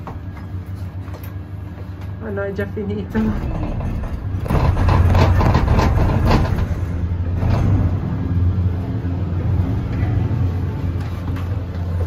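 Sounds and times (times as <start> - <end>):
cable car low rumble: 0.0 - 12.0
rattling and clattering: 3.1 - 8.0.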